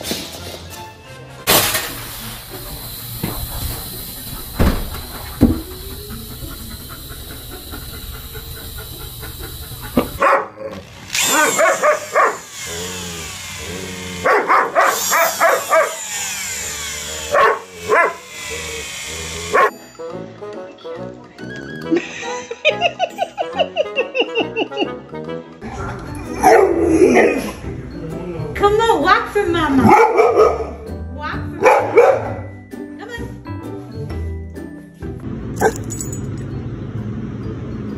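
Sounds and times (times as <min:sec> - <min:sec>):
steady hiss: 0:01.5 - 0:05.2.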